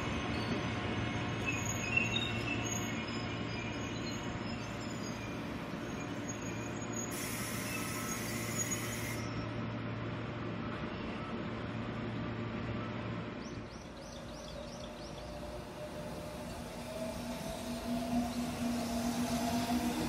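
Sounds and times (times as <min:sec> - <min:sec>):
train rail rumble and hum: 0:00.0 - 0:20.0
brief hiss: 0:07.1 - 0:09.4.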